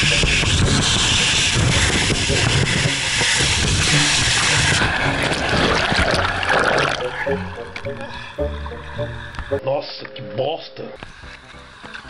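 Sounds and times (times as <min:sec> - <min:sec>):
water and air rushing in water slide: 0:00.0 - 0:09.3
low rumble: 0:00.2 - 0:09.5.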